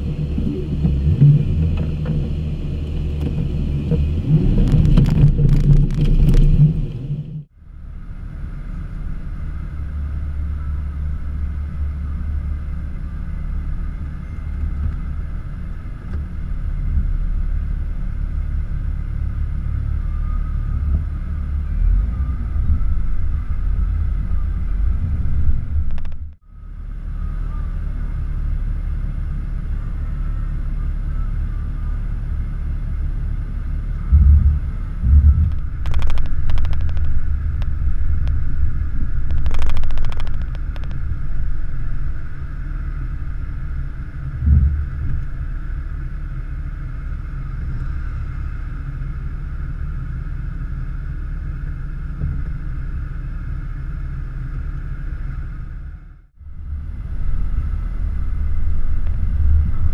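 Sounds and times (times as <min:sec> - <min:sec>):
engine rumbling at low speed: 0:00.0 - 0:59.9
heavy thumps and rattles: 0:34.1 - 0:38.4.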